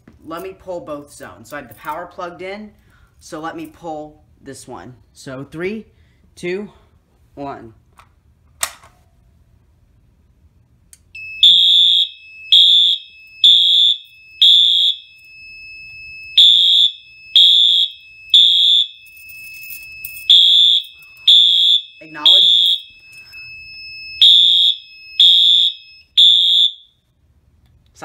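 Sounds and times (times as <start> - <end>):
steady high alarm tone: 11.2 - 27.0
fire alarm horn blasts: 11.2 - 27.1.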